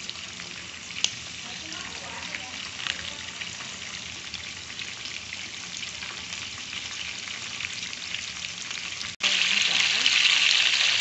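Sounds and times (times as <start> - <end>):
oil sizzling and crackling: 0.0 - 11.0.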